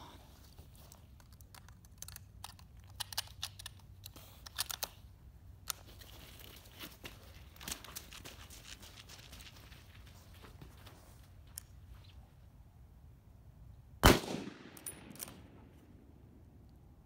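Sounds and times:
rifle bolt clicks and rattles: 0.8 - 6.1, 14.7 - 15.5
clothing rustling on grass: 5.8 - 12.4.

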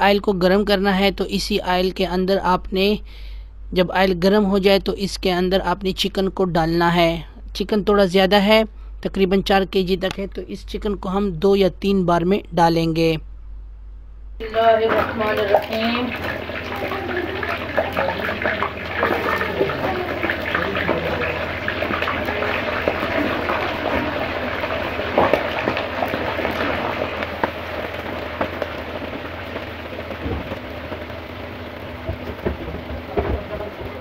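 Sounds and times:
chicken sizzling in hot oil: 14.4 - 34.0.

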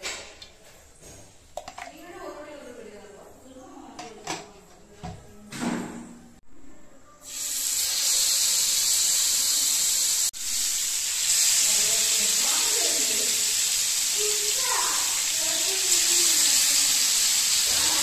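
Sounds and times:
fish sizzling in hot oil: 7.2 - 18.0.

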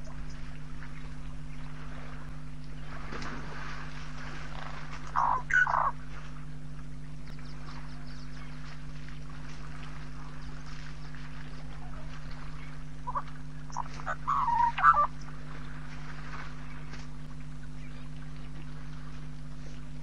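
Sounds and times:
steady low hum: 0.0 - 20.0
short animal calls: 5.1 - 6.0, 13.0 - 15.1.

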